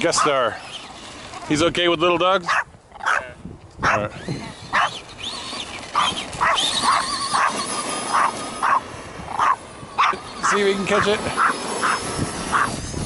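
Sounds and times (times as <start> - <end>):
electric motor whining: 0.0 - 2.3, 3.8 - 13.0
dog barking: 2.5 - 4.0, 6.0 - 7.5, 8.2 - 8.8, 9.4 - 10.2.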